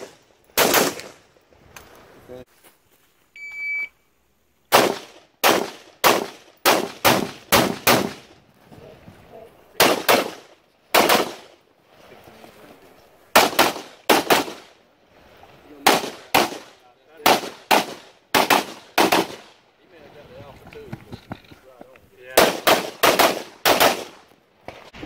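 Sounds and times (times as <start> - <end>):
rapid semi-automatic gunfire: 0.0 - 1.2, 4.7 - 8.3, 9.8 - 11.5, 13.4 - 14.7, 15.9 - 19.5, 22.4 - 24.2
shot timer beep: 3.4 - 3.9.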